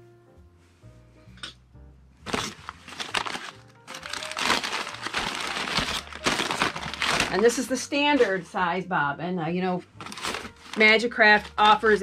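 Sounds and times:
plastic bag crinkling: 2.3 - 8.5, 10.0 - 12.0.

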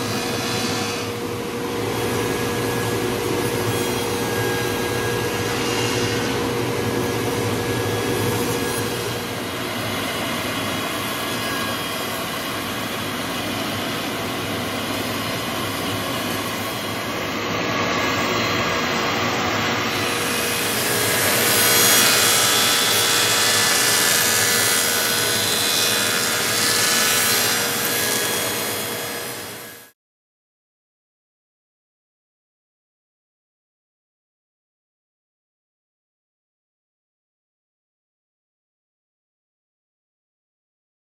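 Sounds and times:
cutter wheel grinding wood: 18.9 - 29.6.

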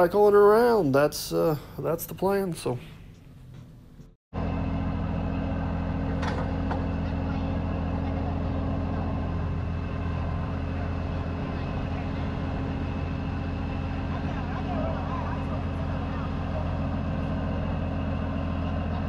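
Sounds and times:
diesel truck engine idling: 4.4 - 19.0.

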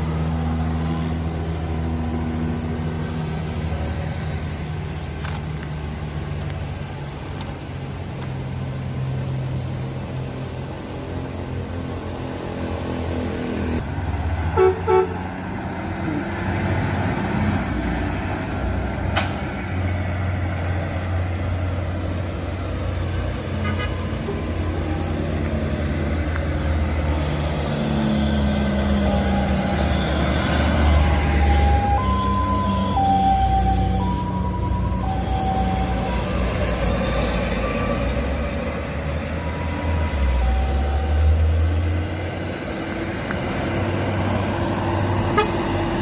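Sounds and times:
trucks driving past: 0.0 - 46.0
horn toots: 14.6 - 15.2, 45.3 - 45.7
musical bus horn tune: 14.6 - 15.2, 23.6 - 24.1, 45.3 - 45.7.

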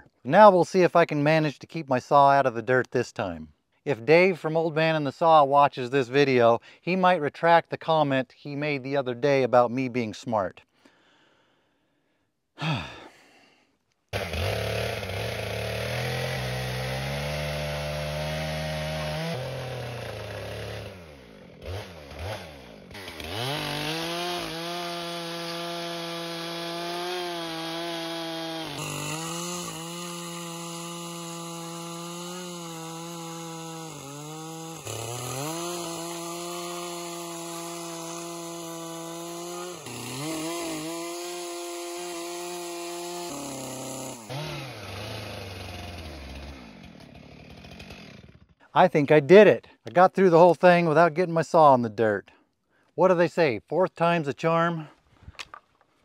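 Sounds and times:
chainsaw cutting wood: 14.1 - 48.6.

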